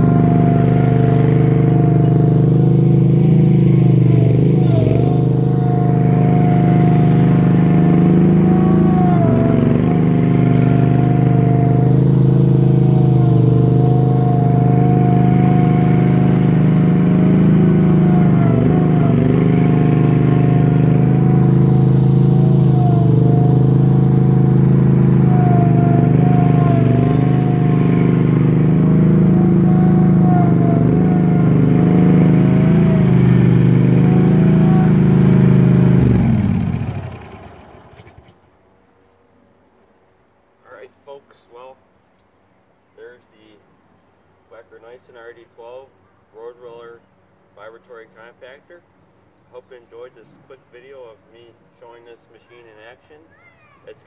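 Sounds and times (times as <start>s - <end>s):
road roller engine running: 0.0s - 38.4s.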